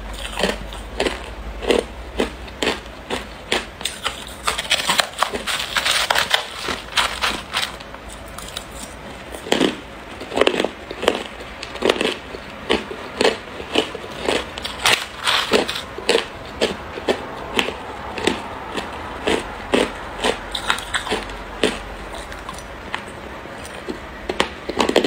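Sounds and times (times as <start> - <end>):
crushed ice crunched between teeth: 3.8 - 12.2, 13.1 - 16.2, 20.5 - 22.7.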